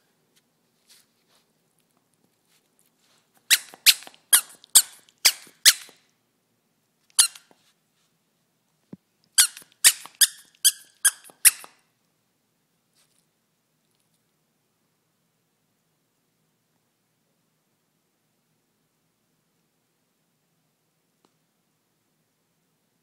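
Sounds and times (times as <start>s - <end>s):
dog toy squeaking: 3.4s - 6.0s, 7.1s - 7.5s, 9.4s - 11.8s.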